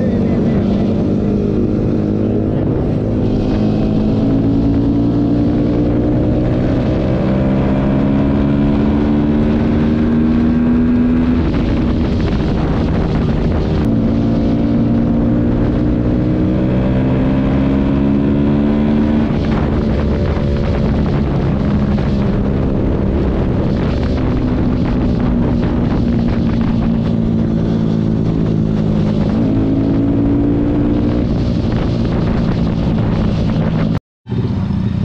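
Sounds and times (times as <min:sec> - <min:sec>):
motorcycle engine accelerating: 0:00.0 - 0:35.0
wind on microphone: 0:00.0 - 0:35.0.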